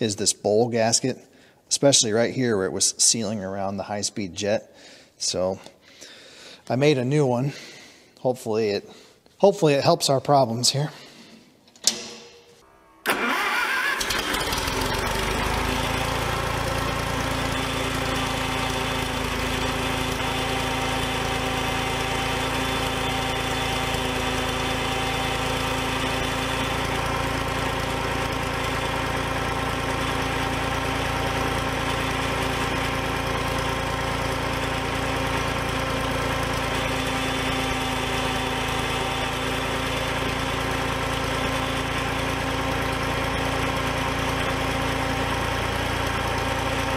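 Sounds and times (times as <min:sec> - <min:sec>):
engine idling: 0:13.1 - 0:46.9.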